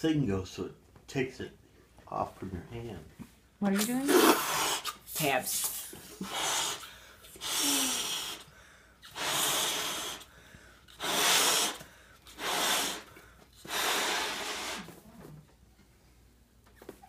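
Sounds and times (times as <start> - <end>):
balloon being blown up: 3.8 - 10.3, 10.9 - 15.0.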